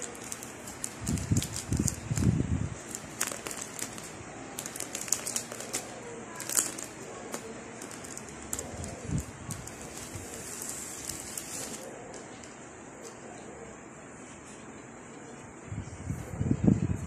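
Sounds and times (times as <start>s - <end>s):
plastic wrapping crinkling: 0.0s - 12.5s.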